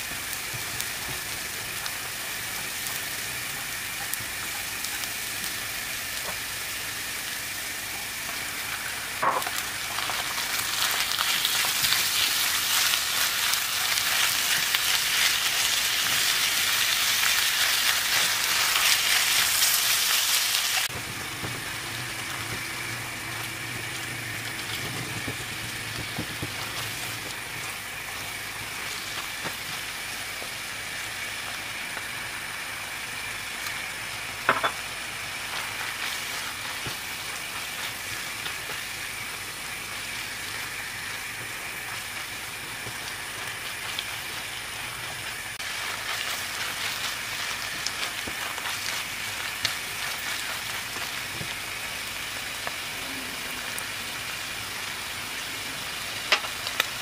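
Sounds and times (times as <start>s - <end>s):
meat and onions sizzling in a pan: 0.0s - 57.0s
spatula stirring and scraping: 35.2s - 39.0s, 41.8s - 51.8s.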